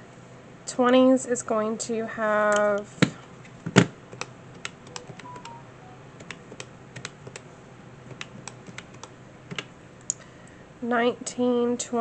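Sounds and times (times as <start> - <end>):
calculator keys clicking: 3.7 - 5.6, 6.2 - 7.5, 8.1 - 9.7.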